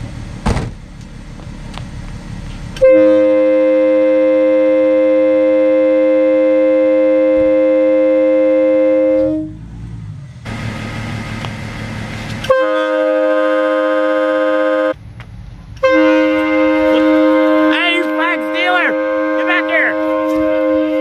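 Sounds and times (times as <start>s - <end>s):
air horn chord blasting: 2.8s - 9.6s, 12.4s - 15.0s, 15.8s - 21.0s.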